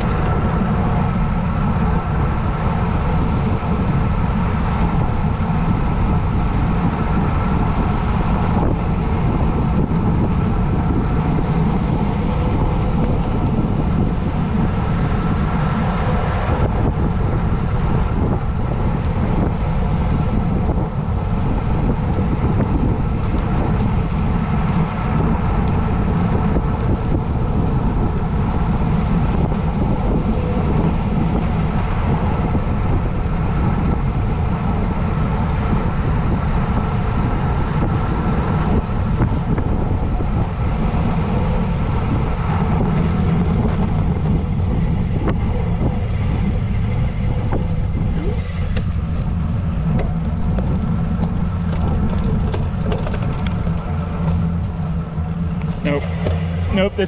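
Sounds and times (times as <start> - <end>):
bicycle tyre noise: 0.0 - 57.0
wind rushing over microphone: 0.0 - 57.0.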